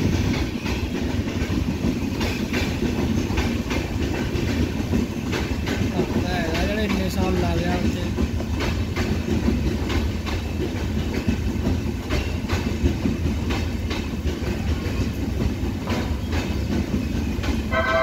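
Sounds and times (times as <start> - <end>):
low train rumble: 0.0 - 18.0
train wheels clacking over rail joints: 0.0 - 18.0.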